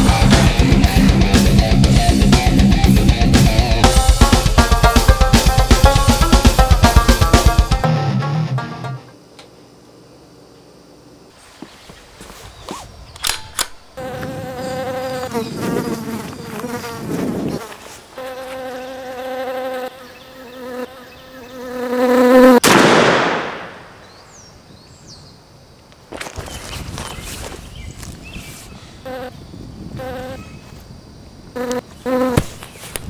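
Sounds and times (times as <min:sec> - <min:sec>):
wasp buzzing: 0:03.3 - 0:07.8, 0:13.9 - 0:22.6, 0:29.0 - 0:30.7, 0:31.5 - 0:33.0.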